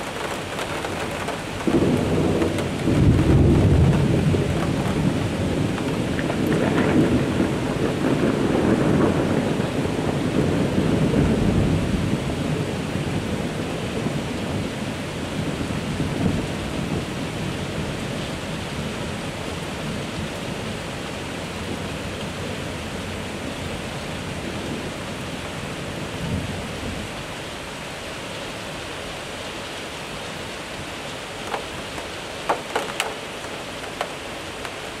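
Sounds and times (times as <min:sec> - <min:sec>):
thunder rolling: 0:00.0 - 0:12.6, 0:31.4 - 0:34.2
heavy rain hissing: 0:00.0 - 0:35.0.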